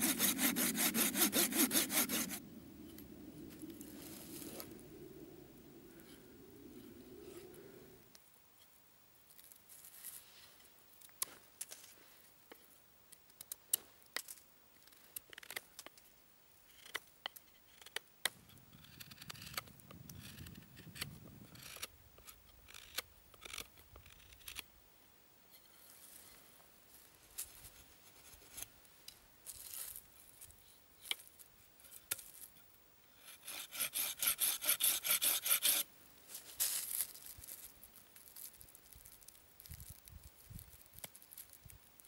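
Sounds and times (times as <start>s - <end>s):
knife cutting wood: 0.0s - 2.4s, 17.7s - 24.6s.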